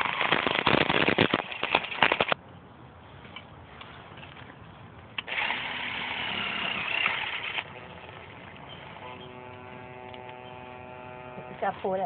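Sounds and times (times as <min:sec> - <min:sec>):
cordless drill whining: 0:05.3 - 0:07.8, 0:08.7 - 0:11.8.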